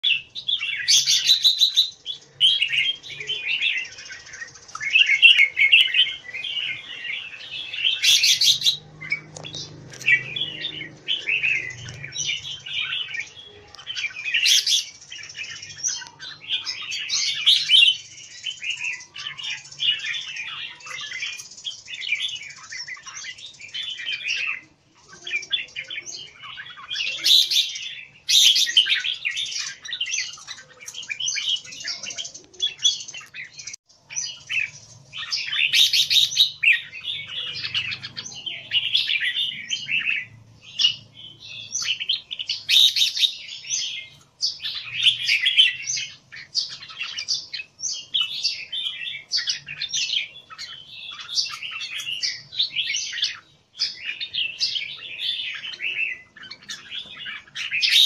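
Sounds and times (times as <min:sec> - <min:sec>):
birds singing and chattering: 0:00.0 - 0:58.0.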